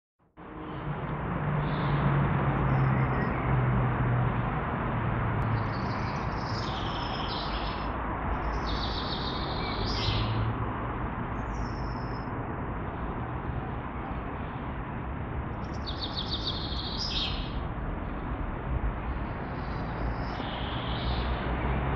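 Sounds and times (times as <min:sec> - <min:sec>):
small songbirds chirping: 0:01.6 - 0:02.0, 0:05.4 - 0:10.5, 0:11.3 - 0:12.4, 0:15.5 - 0:18.4, 0:19.0 - 0:21.8.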